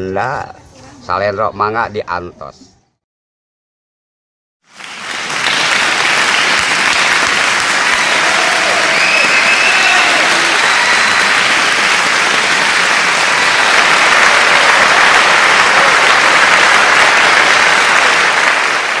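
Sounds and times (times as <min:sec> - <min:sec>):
crowd applauding: 0:04.7 - 0:19.0.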